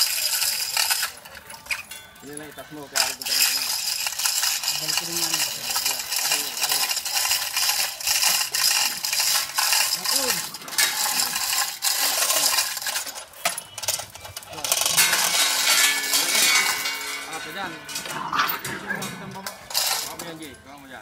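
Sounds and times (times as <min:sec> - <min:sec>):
chain hoist clattering: 0:00.0 - 0:21.0.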